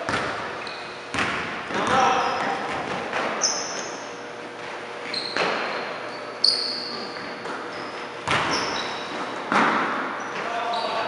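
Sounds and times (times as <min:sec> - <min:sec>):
sneakers squeaking on floor: 0:00.0 - 0:11.0
basketball bouncing on hardwood: 0:00.1 - 0:00.4, 0:01.1 - 0:03.3, 0:08.2 - 0:09.9.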